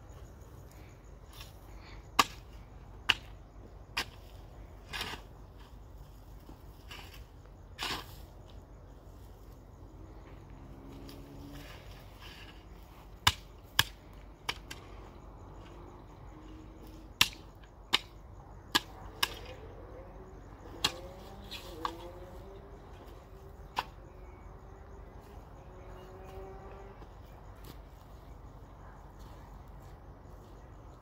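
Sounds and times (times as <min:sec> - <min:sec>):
hoe chopping stony ground: 0:02.2 - 0:05.8, 0:06.4 - 0:08.3, 0:11.1 - 0:14.8, 0:16.8 - 0:19.6, 0:20.6 - 0:24.1.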